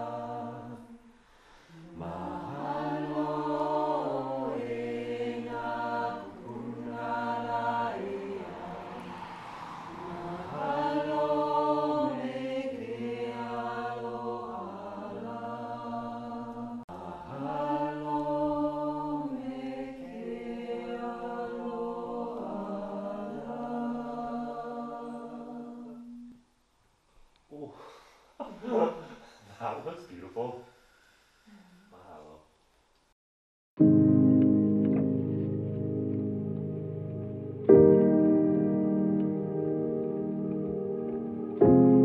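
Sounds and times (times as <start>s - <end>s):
group chanting: 0.0s - 26.3s.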